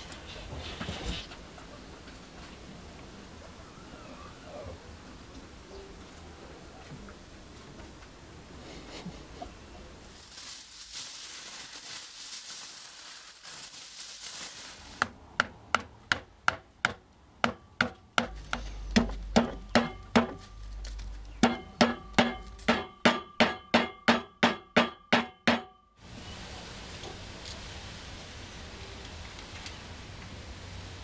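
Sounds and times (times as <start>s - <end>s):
aluminium foil crinkling: 10.0s - 15.1s, 20.3s - 21.4s
mallet tapping foil on wood: 15.0s - 20.6s, 21.4s - 25.8s.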